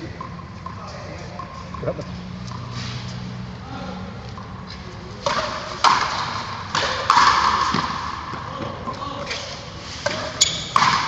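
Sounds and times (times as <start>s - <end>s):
ball cracking off rackets and wall: 5.2s - 11.0s.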